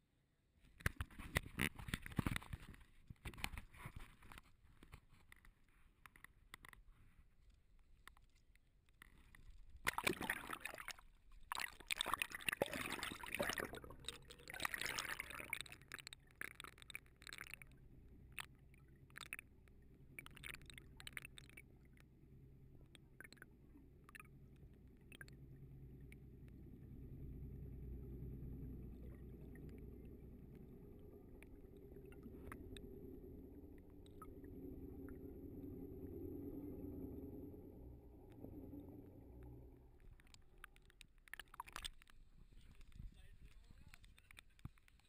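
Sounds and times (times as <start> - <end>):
low mechanical hum underwater: 0.0 - 45.0
water sloshing and splashing: 9.0 - 22.2, 28.8 - 37.0, 38.3 - 44.0
churning water: 9.8 - 40.6.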